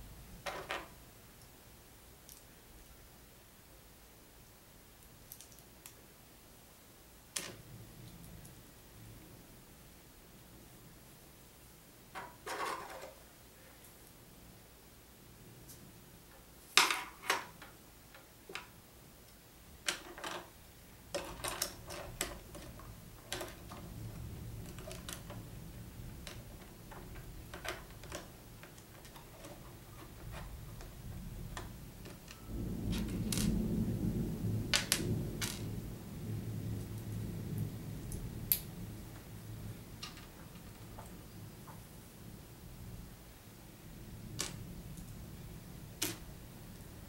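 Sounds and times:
plastic lego pieces clicking: 0:21.1 - 0:25.5, 0:26.2 - 0:33.6.

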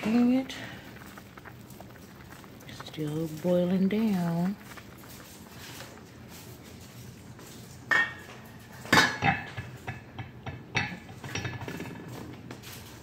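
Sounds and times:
metal cookware clattering: 0:07.8 - 0:12.3.

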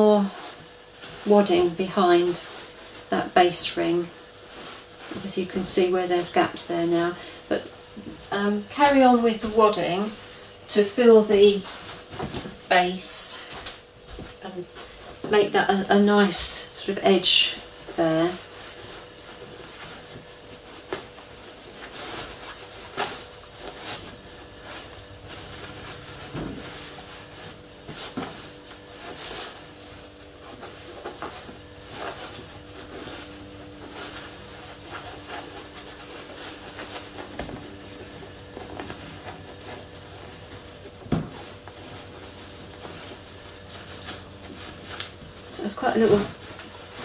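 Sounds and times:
cloth and stuffing rustling: 0:00.0 - 0:47.0.

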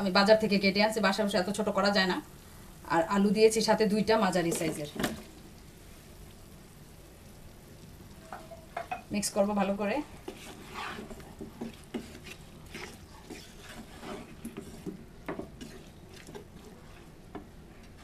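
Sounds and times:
spatula scraping a cooking pot: 0:10.1 - 0:18.0.

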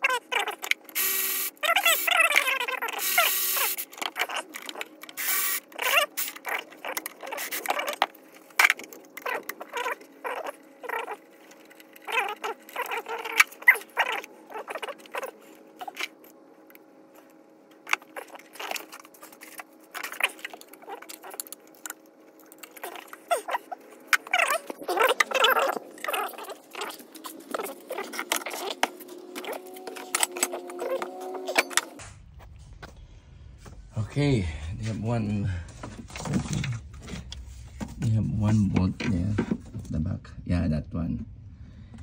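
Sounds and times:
cordless ratchet whirring: 0:00.9 - 0:08.0.

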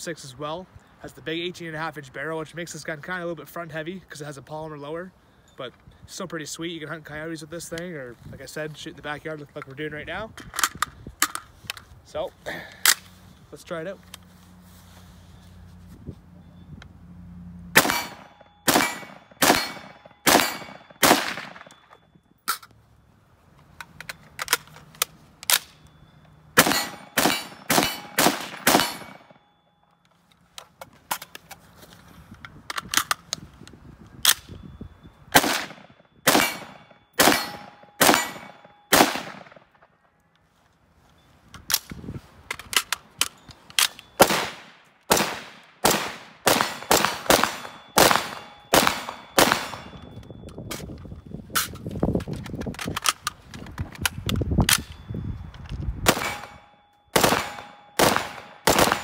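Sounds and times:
second rifle firing: 0:17.8 - 0:21.7, 0:26.6 - 0:29.4, 0:35.4 - 0:39.6, 0:57.2 - 0:59.0
rifle shots: 0:17.8 - 0:21.8, 0:26.6 - 0:29.4, 0:35.4 - 0:39.7, 0:44.2 - 0:50.0, 0:56.0 - 0:59.0.

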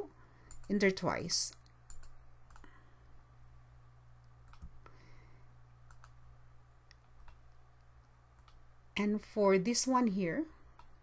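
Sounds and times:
low steady hum: 0:00.0 - 0:11.0
computer mouse clicks: 0:00.4 - 0:02.8, 0:04.2 - 0:04.8, 0:05.8 - 0:06.2, 0:06.9 - 0:08.6, 0:10.7 - 0:11.0.

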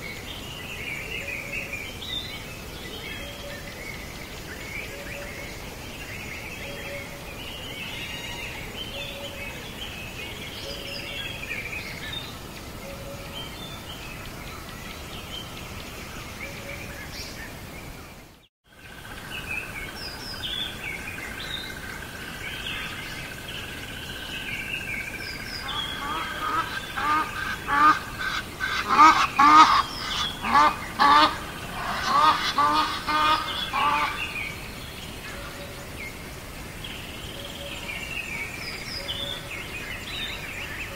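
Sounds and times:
birds chirping: 0:00.0 - 0:40.9
loud repeated bird calls: 0:25.1 - 0:34.6.

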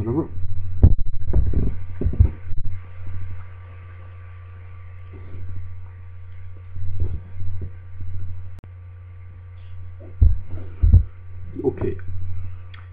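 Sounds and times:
steady low hum: 0:00.0 - 0:12.9
short low pulses: 0:04.7 - 0:12.8.

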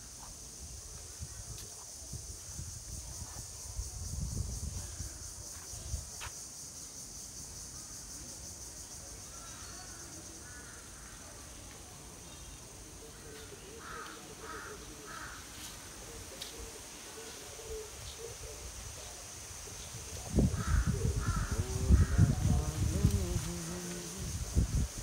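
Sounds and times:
crow cawing: 0:13.8 - 0:15.5, 0:20.6 - 0:22.1.

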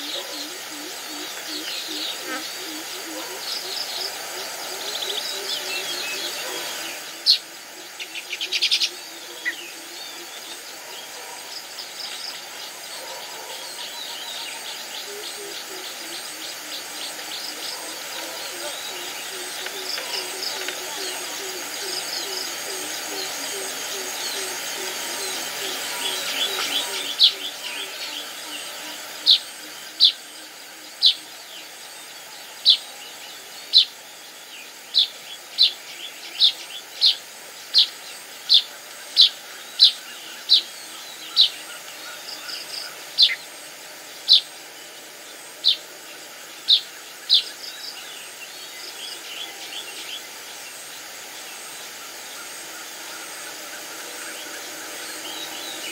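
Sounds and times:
bird chirping: 0:46.6 - 0:50.6.

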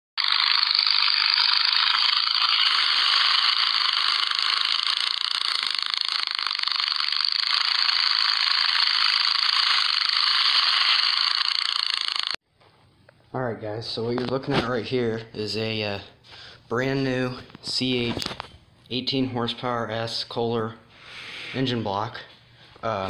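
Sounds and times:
small engine running: 0:00.2 - 0:12.4.

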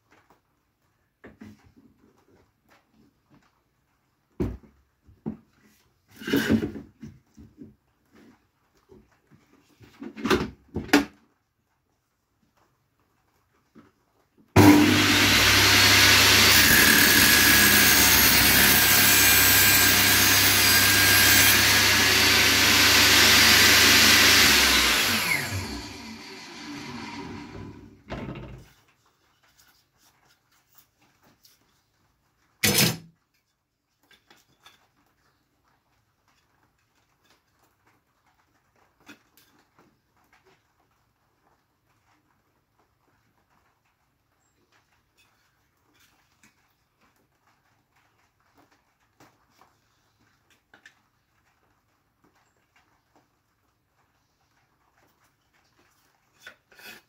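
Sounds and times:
table saw running: 0:14.6 - 0:28.1.

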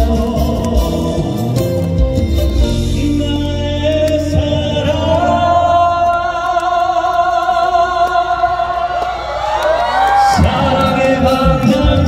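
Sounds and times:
band playing: 0:00.0 - 0:09.0, 0:10.2 - 0:12.0
man singing with vibrato: 0:00.0 - 0:09.0, 0:10.3 - 0:12.0.

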